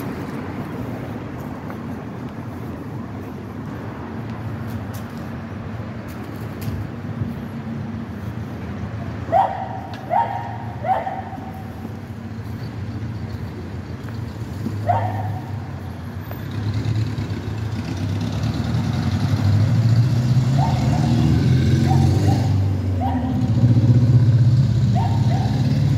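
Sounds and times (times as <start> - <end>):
street traffic: 0.0 - 25.9
dog barking: 9.3 - 11.7, 14.8 - 15.5, 20.5 - 23.4, 24.9 - 25.6.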